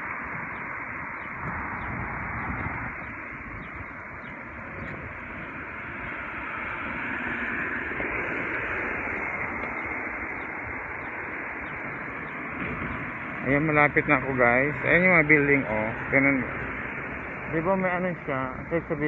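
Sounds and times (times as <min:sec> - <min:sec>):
hissing outdoor background noise: 0:00.0 - 0:19.0.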